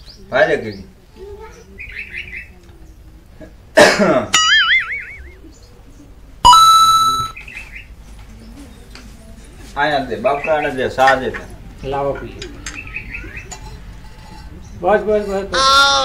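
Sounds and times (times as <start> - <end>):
wavering whistle-like tone: 4.4 - 5.4, 6.5 - 7.4
faint bird chirps: 4.6 - 8.9
bright ringing chime: 6.5 - 7.4.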